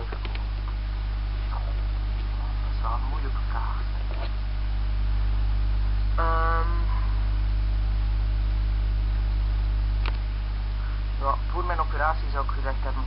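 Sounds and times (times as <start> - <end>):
low electrical hum: 0.0 - 13.0
woman's short vocal sound: 6.2 - 7.2
faint click: 10.0 - 10.2.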